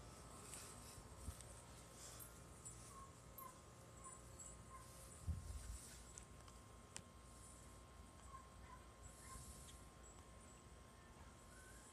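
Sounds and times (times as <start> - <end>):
faint high chirps: 9.1 - 11.9.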